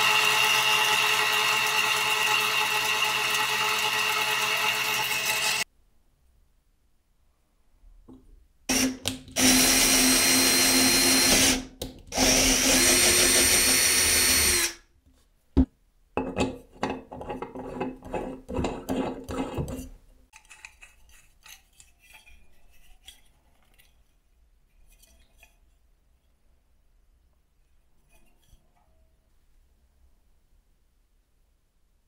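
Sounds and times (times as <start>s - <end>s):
electric drill running: 0.0s - 5.6s, 8.7s - 11.6s, 12.2s - 14.8s.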